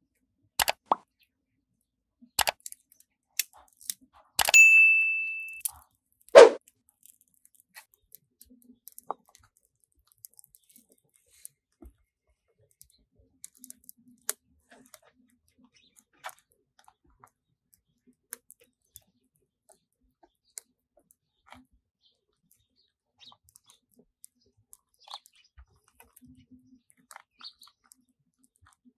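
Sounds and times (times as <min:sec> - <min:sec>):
sharp knock: 0:06.4 - 0:06.6.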